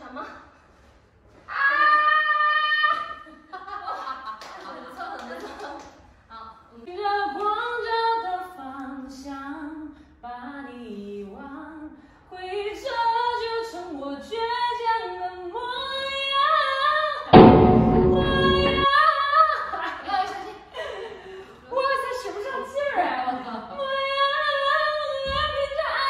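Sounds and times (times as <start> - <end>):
loud burst of noise: 17.4 - 18.9.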